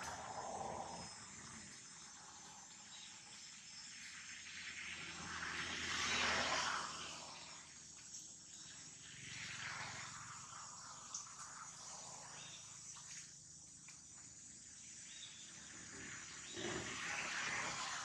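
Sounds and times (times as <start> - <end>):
rush of noise: 0.0 - 2.7
insect chorus chirring: 0.0 - 18.0.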